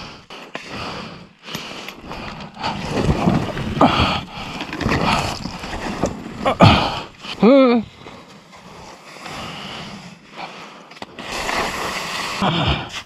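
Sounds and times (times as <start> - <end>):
plastic sled scraping snow and rock: 2.0 - 13.0.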